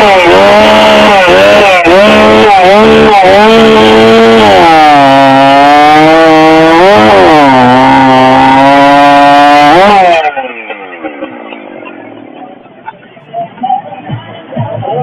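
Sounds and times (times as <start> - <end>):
chainsaw cutting log: 0.0 - 10.4.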